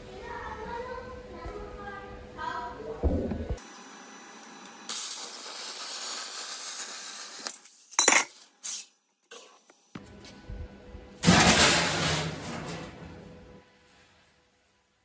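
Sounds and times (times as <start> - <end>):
sheet metal clanking and rattling: 11.2 - 13.4.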